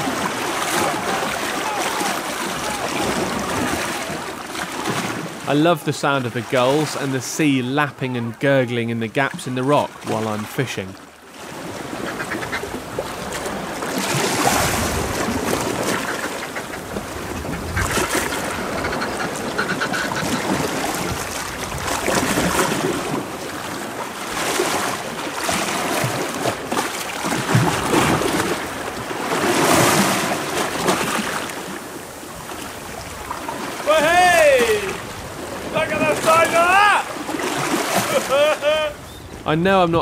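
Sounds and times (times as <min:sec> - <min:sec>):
gulls calling: 0:00.0 - 0:10.9, 0:11.8 - 0:13.0, 0:15.5 - 0:21.3, 0:32.8 - 0:40.0
sea lapping on rocky shore: 0:00.0 - 0:39.8.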